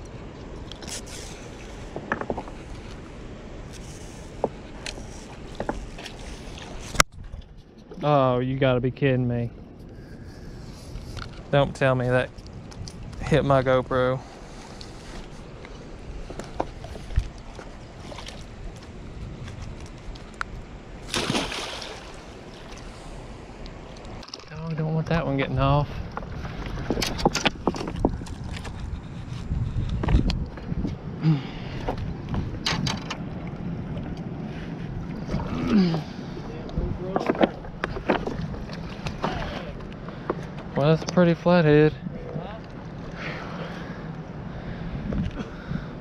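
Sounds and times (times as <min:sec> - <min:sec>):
low rumble of wind and water: 0:00.0 - 0:46.0
fish splashing in shallow water: 0:19.7 - 0:24.4.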